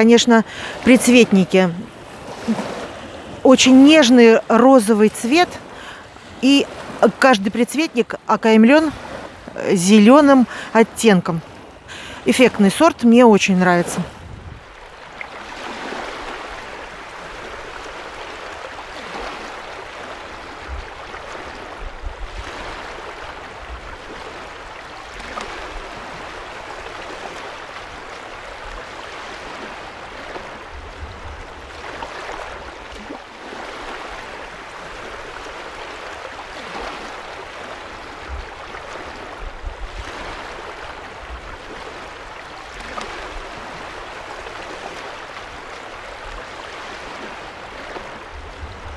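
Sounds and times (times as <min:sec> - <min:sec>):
small waves lapping on shore: 0:00.0 - 0:48.9.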